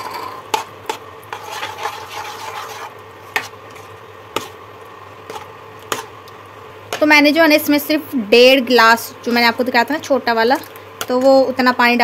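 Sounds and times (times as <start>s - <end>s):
spatula scraping a pan: 0.0s - 4.6s, 5.2s - 6.1s.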